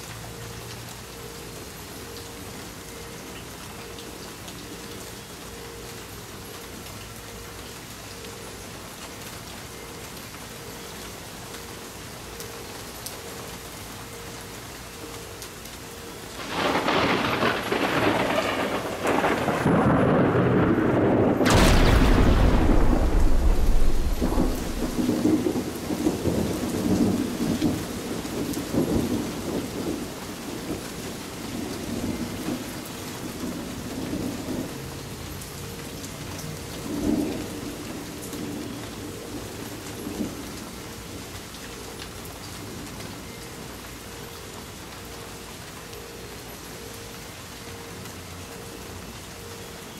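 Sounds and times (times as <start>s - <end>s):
rain falling on patio and plants: 0.0s - 49.9s
thunder rumbling: 16.4s - 34.8s.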